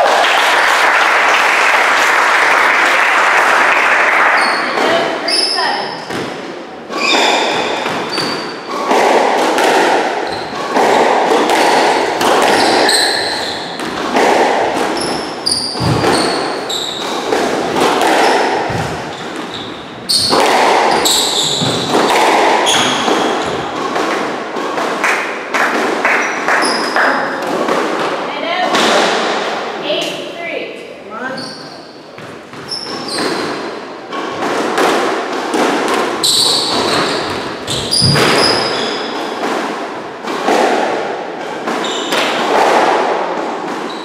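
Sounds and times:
squash ball hitting rackets and walls: 0:03.4 - 0:30.3, 0:31.3 - 0:44.0
shoes squeaking on wooden floor: 0:04.3 - 0:09.2, 0:10.2 - 0:24.1, 0:26.2 - 0:27.5, 0:31.2 - 0:34.6, 0:35.8 - 0:39.4, 0:41.8 - 0:42.4, 0:43.8 - 0:44.0.

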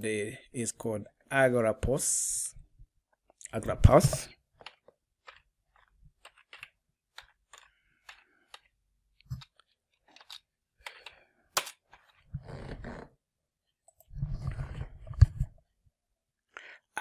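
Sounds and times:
computer keyboard typing: 0:04.6 - 0:08.7.

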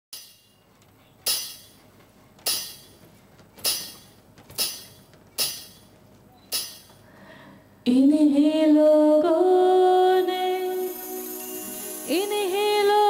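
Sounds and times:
foot stamping: 0:00.6 - 0:07.0
anklet bells jingling: 0:10.6 - 0:13.0.

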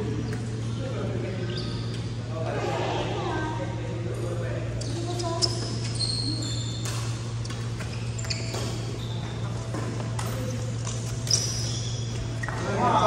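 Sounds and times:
shoes squeaking on wooden court: 0:01.4 - 0:02.2, 0:04.7 - 0:13.0.

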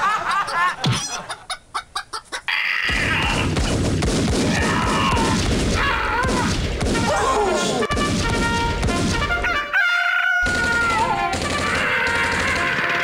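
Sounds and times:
chickens clucking: 0:00.0 - 0:02.8.

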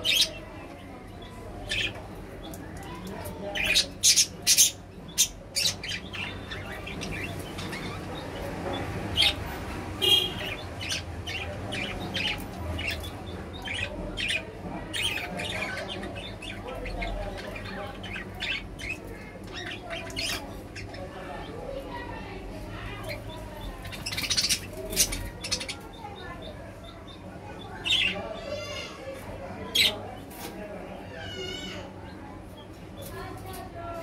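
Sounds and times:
budgerigars chirping: 0:00.0 - 0:21.4, 0:23.1 - 0:28.9.

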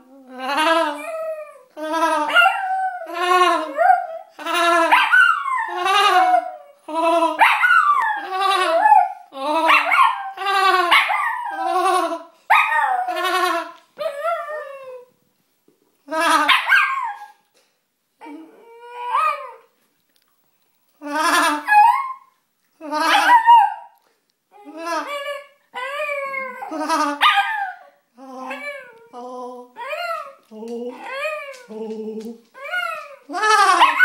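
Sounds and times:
dog howling: 0:25.0 - 0:27.8, 0:29.8 - 0:34.0
person making silly laughing noise: 0:33.3 - 0:34.0.

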